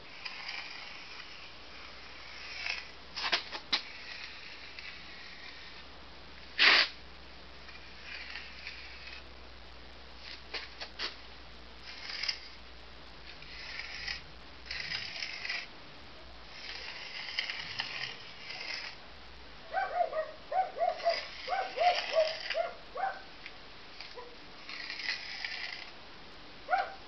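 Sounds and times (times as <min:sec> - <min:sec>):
trowel scraping mortar: 0:00.2 - 0:05.8, 0:06.6 - 0:06.9, 0:07.7 - 0:09.3, 0:11.8 - 0:12.6, 0:13.4 - 0:15.7, 0:16.5 - 0:19.0, 0:21.0 - 0:22.6, 0:24.0 - 0:26.0.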